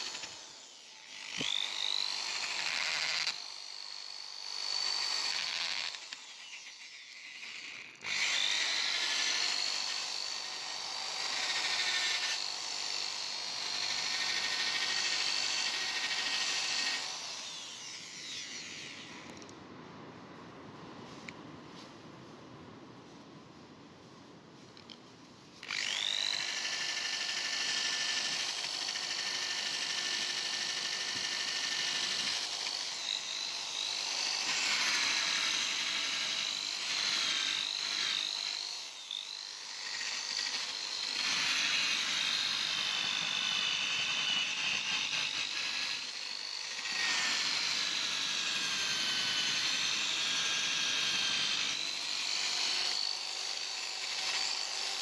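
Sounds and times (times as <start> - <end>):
wire brush motor whining: 0.0 - 12.4.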